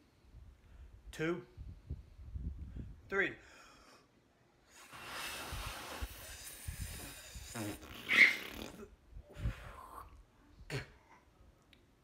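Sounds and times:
man blowing breathy puffs: 4.6s - 10.1s.

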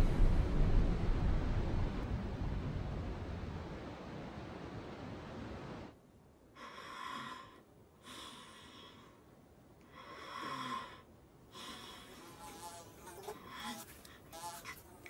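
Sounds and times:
steady rushing noise: 0.0s - 6.3s
person snoring: 10.0s - 12.6s, 13.3s - 14.8s.

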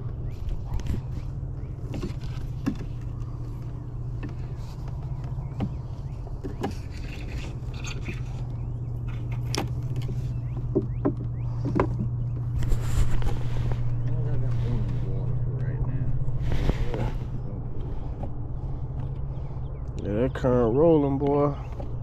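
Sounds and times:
steady low hum: 0.0s - 22.0s
short rustle: 12.6s - 15.2s.

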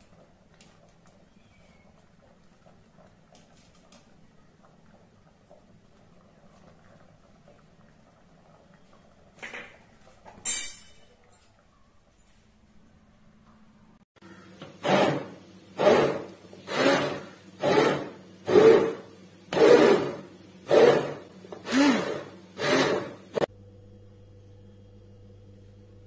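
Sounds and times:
hand masher scraping metal pot: 14.8s - 23.5s.

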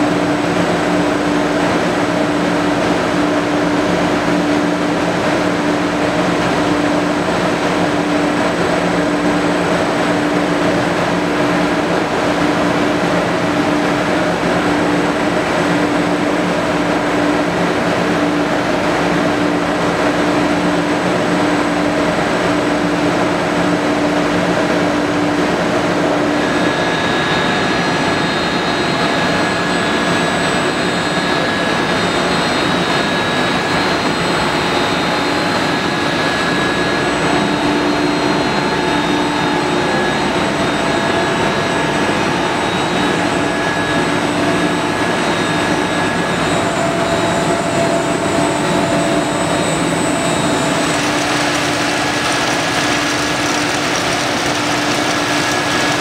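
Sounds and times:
faint machine whine: 0.0s - 56.0s
drilling machine running: 26.5s - 56.0s.

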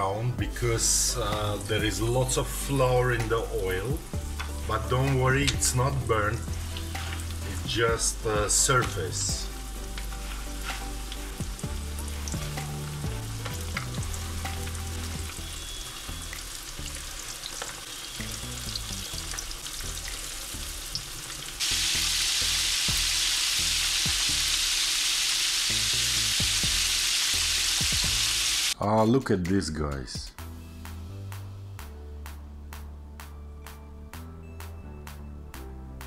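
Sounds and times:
oil sizzling with pops: 1.2s - 28.8s.

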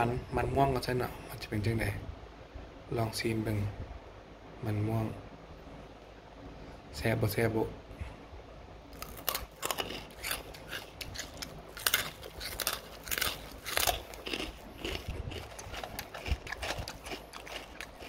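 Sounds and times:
crunching chips: 8.9s - 18.0s.

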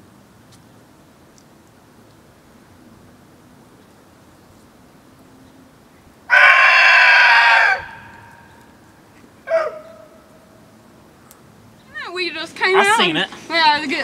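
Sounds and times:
rooster crowing: 6.3s - 8.5s.

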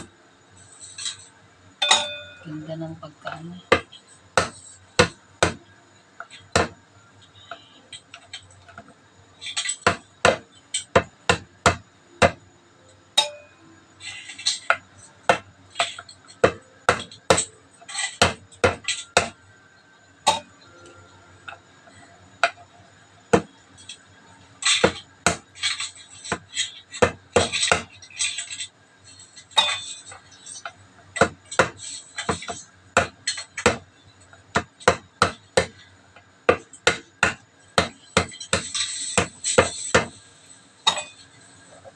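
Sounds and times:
mallet knocking on crab claws: 3.7s - 5.6s.

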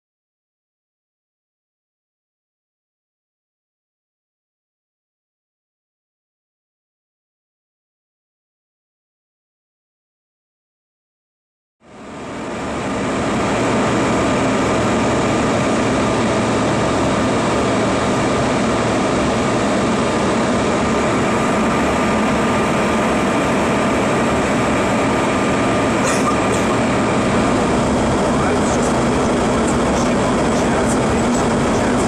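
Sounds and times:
faint steady whine: 11.8s - 32.0s
jet engines droning: 11.8s - 32.0s
airflow rushing: 12.8s - 32.0s.

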